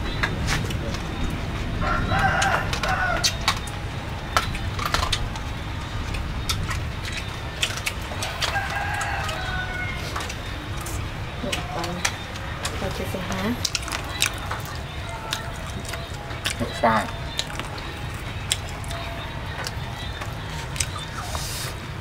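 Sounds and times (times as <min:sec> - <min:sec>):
food clicks and crunches: 0:00.1 - 0:21.9
rooster crowing: 0:01.8 - 0:03.8, 0:08.1 - 0:10.6.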